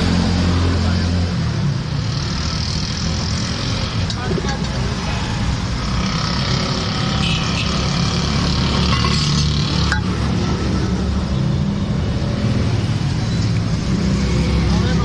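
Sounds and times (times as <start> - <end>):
roadside traffic rumble: 0.0 - 15.0.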